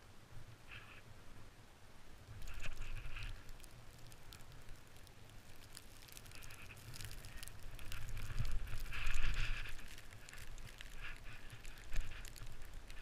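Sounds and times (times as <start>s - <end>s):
wind rumble on microphone: 2.2s - 13.0s
footsteps crunching in snow: 5.9s - 13.0s.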